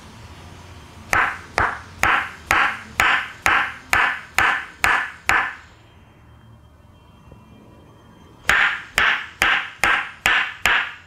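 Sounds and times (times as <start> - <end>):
wooden mallet knocking on wood: 8.5 - 11.0.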